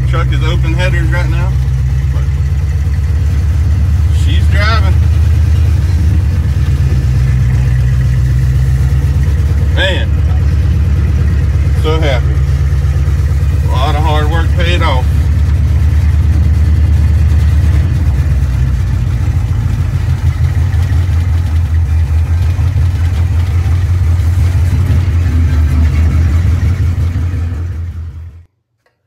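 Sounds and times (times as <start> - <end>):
truck engine exhaust pulsing: 0.0 - 28.5.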